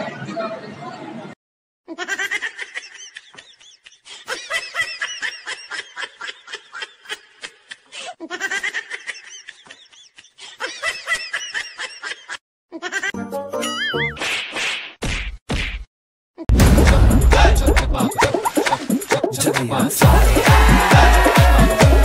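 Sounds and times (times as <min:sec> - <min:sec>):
high-pitched laughter: 0:01.9 - 0:13.2.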